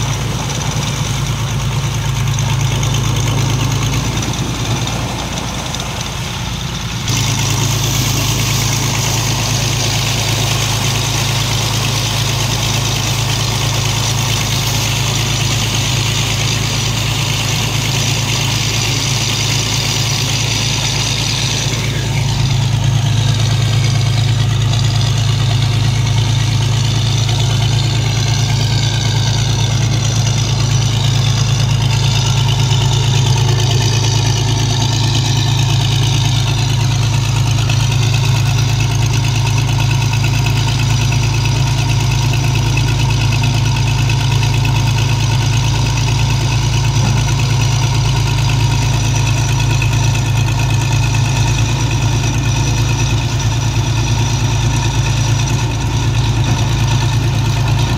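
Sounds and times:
diesel engine droning: 0.0s - 57.9s.

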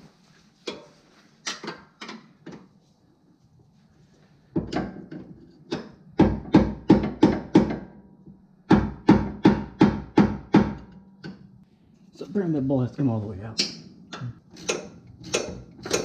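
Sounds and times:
hammer striking metal bolt: 14.6s - 16.0s.

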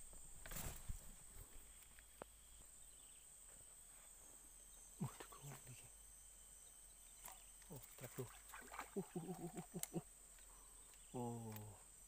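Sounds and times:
click: 9.8s - 11.7s.

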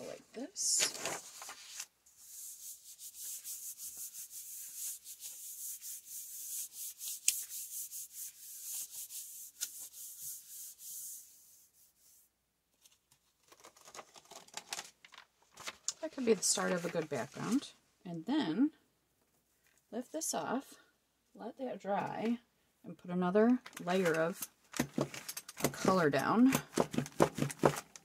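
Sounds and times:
palm rubbing over paper: 1.0s - 12.3s.

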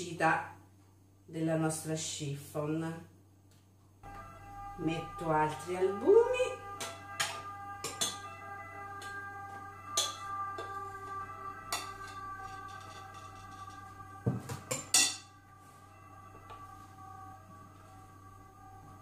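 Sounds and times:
soft background music: 4.0s - 19.0s.

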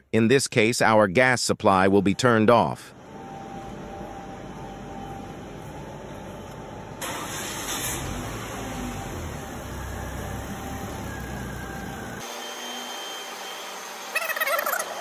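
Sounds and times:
car engine idling: 7.0s - 12.2s.

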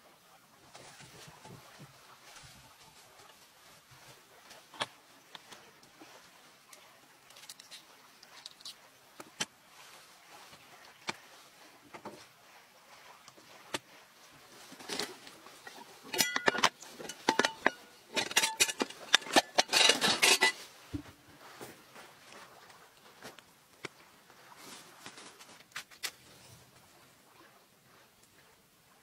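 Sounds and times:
objects rattling in a basket: 14.6s - 20.6s.

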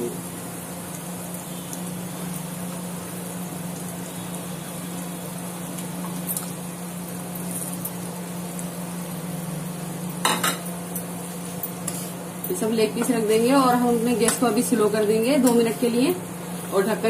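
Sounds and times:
gravy bubbling and sizzling: 0.0s - 17.0s.

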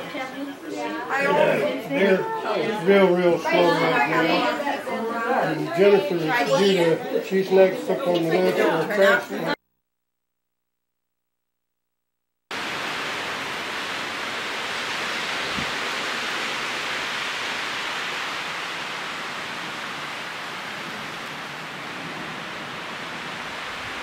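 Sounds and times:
strong wind rushing through trees: 12.5s - 24.0s.

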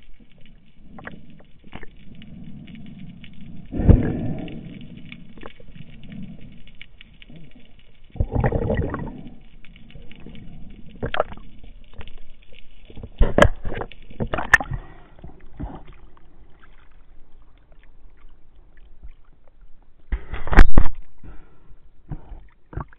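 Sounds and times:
underwater water rush: 0.0s - 22.9s
underwater knocks and clicks: 8.1s - 9.4s, 10.9s - 16.2s, 17.7s - 21.4s, 22.0s - 22.9s
splashing and gurgling: 8.2s - 9.4s, 13.0s - 19.4s.

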